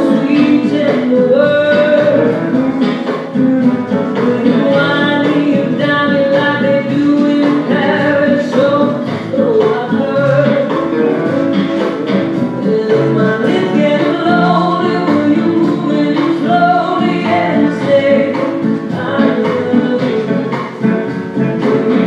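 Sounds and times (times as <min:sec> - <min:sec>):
song with singer: 0:00.0 - 0:22.0.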